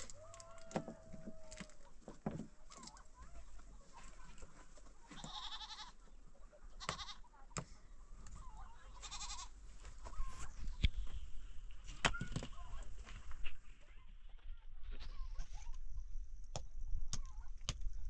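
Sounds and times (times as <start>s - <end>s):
livestock bleating: 5.2s - 6.0s, 6.8s - 7.3s, 8.9s - 9.5s.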